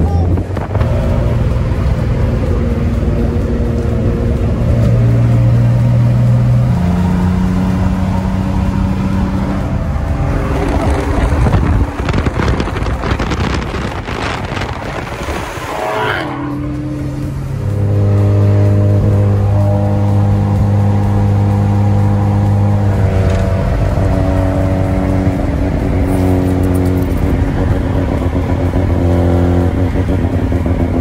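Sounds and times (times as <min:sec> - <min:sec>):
car engine at highway speed: 0:00.0 - 0:31.0
crackling exhaust: 0:00.0 - 0:31.0.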